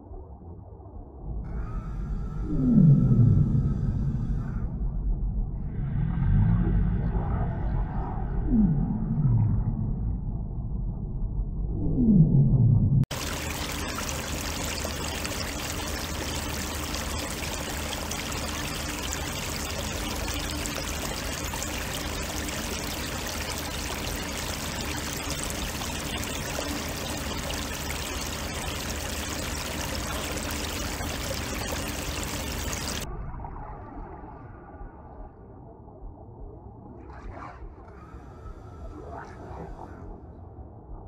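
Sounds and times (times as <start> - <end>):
running water rushing: 13.1 - 33.1.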